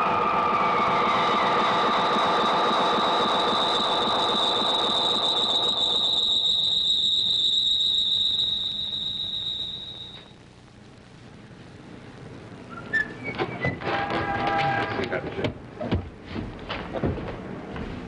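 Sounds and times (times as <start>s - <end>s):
rushing noise: 0.0s - 6.9s
shrill whistling tone: 0.0s - 10.3s, 12.7s - 13.8s.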